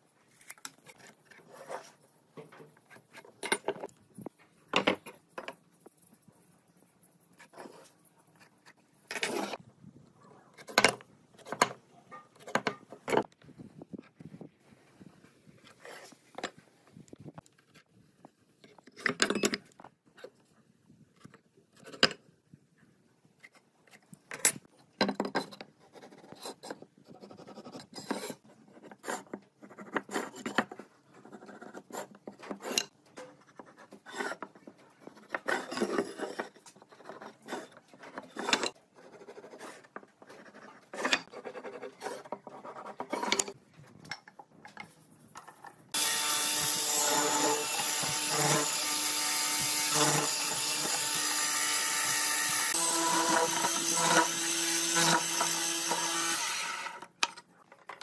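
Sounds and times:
power tool running: 0:46.0 - 0:57.0.

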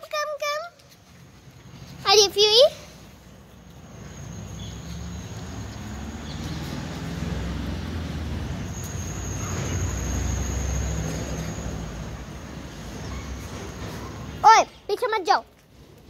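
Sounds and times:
vehicle engine rumble passing: 0:02.8 - 0:14.4.

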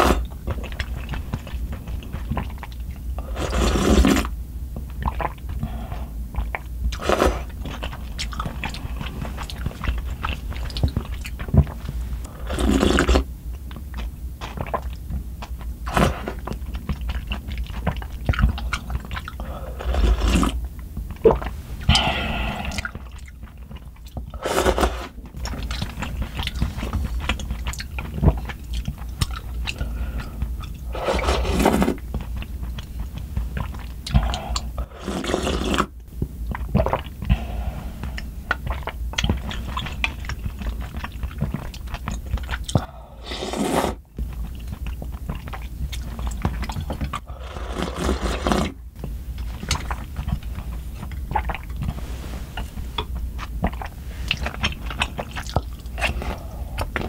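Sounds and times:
wet chewing: 0:00.0 - 0:57.0
slurping noodle broth: 0:03.2 - 0:04.3, 0:05.1 - 0:08.0, 0:08.6 - 0:13.3, 0:18.6 - 0:20.6, 0:24.4 - 0:28.6, 0:29.7 - 0:32.1, 0:33.6 - 0:36.0, 0:42.5 - 0:44.6, 0:45.4 - 0:48.8, 0:49.4 - 0:57.0.

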